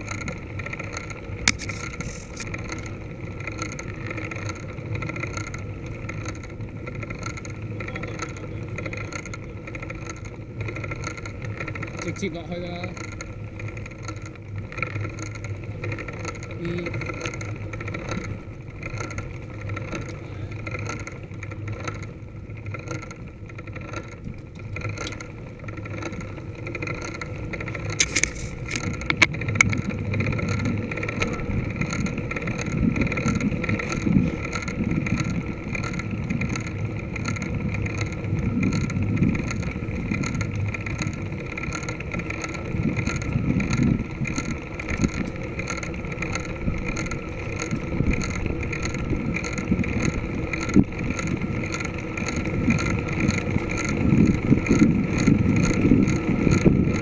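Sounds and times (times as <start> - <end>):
tyre noise on tarmac: 0.0 - 57.0
sharp clicks: 0.9 - 2.5
wind buffeting microphone: 24.1 - 57.0.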